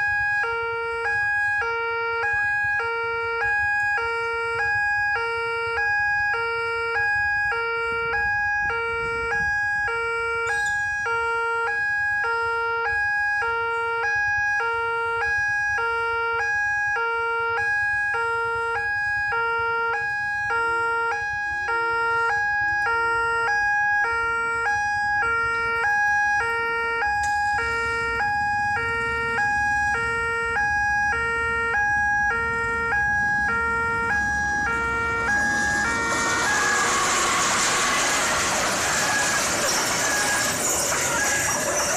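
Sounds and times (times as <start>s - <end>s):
diesel locomotive rumble: 27.0s - 41.9s.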